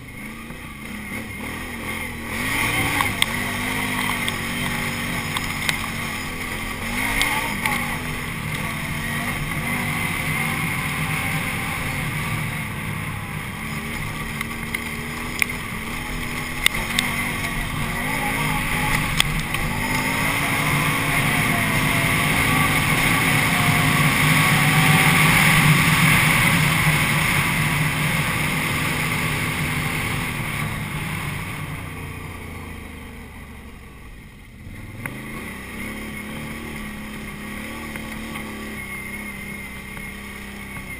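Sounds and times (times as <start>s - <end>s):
atv engine revving: 0.0s - 40.9s
sharp clicks: 2.9s - 7.8s, 13.9s - 17.6s.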